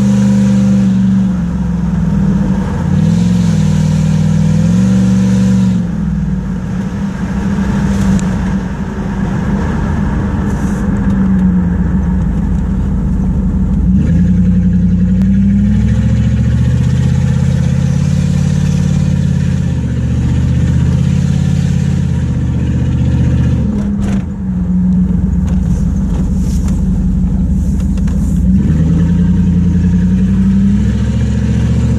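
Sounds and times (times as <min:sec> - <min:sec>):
car exhaust drone: 0:00.0 - 0:31.9.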